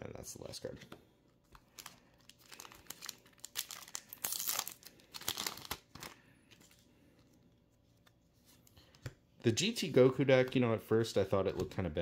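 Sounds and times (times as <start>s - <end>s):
foil wrapper tearing and crinkling: 1.8s - 6.2s.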